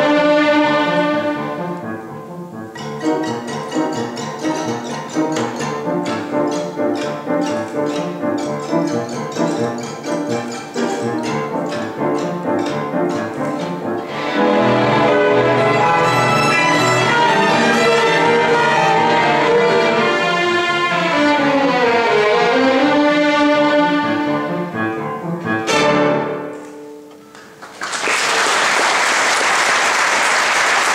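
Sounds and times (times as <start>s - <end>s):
violin ensemble playing dance: 0.0s - 27.0s
audience applause: 27.4s - 30.9s.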